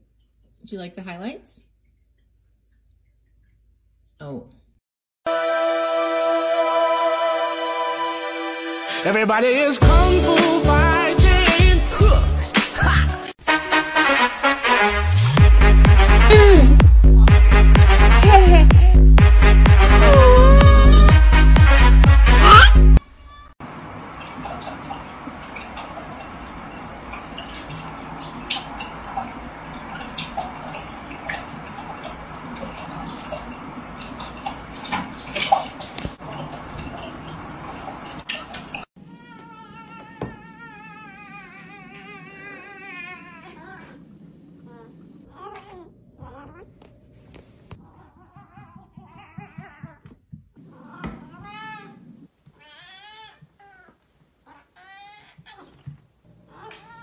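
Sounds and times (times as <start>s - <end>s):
water splashing and dripping: 1.7s - 4.2s, 23.6s - 43.9s
cat meowing: 20.0s - 21.2s, 39.1s - 44.0s, 50.7s - 53.9s, 54.5s - 55.8s.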